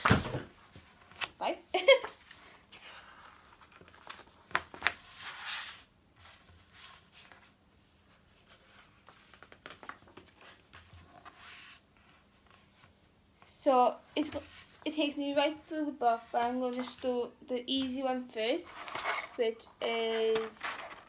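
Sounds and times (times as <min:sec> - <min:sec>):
paper rustling and crinkling: 0:02.3 - 0:12.9, 0:18.7 - 0:21.0.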